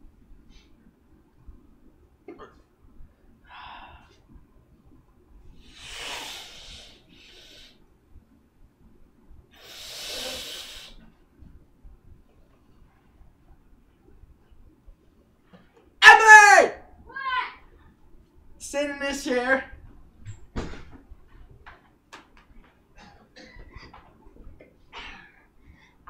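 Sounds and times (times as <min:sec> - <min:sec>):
person breathing heavily: 0:03.4 - 0:04.2, 0:05.6 - 0:07.8, 0:09.6 - 0:11.0.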